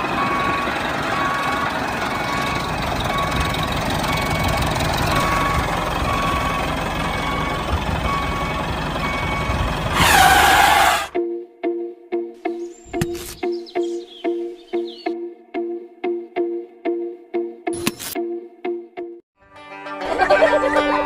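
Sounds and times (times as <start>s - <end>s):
reversing beeper: 0.0s - 11.2s
tractor engine running: 0.0s - 11.2s.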